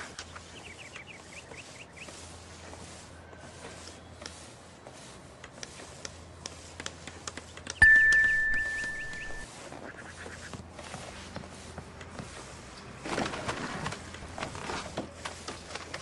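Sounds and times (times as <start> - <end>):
bell-like ding: 7.8 - 9.5.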